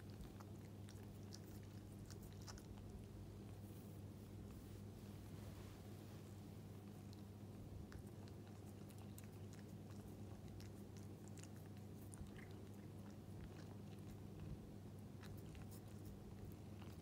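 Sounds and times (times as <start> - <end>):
low steady hum: 0.0 - 17.0
hand rubbing cat fur: 3.6 - 6.4.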